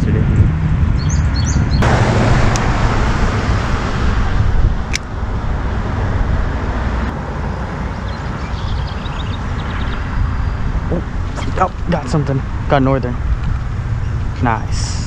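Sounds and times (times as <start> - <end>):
wind rumble on microphone: 0.0 - 15.0
road traffic passing: 0.4 - 15.0.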